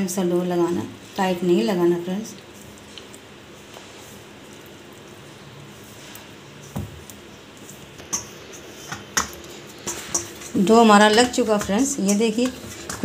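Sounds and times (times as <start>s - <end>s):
hand kneading dough: 2.8s - 13.0s.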